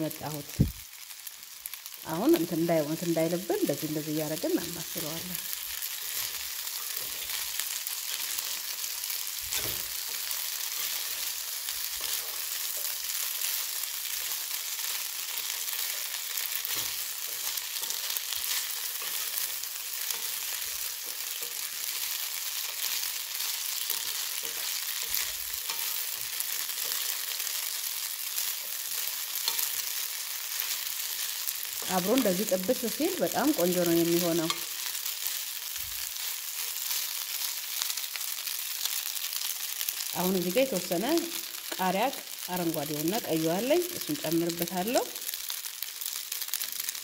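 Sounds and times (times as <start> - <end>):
food sizzling in a pan: 0.0 - 47.0.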